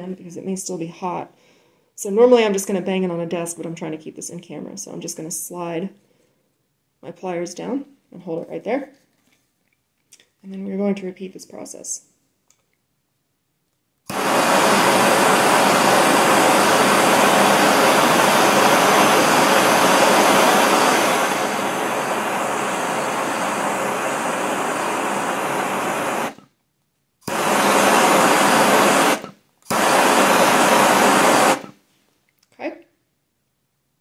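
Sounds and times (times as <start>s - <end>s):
gas torch flame hissing: 14.1s - 26.5s, 27.2s - 31.8s.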